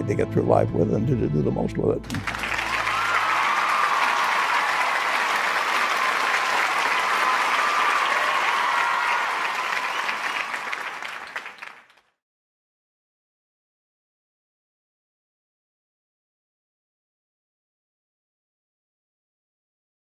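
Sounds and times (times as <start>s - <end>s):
faint cheers: 2.1s - 11.6s
crowd applauding: 2.1s - 12.1s.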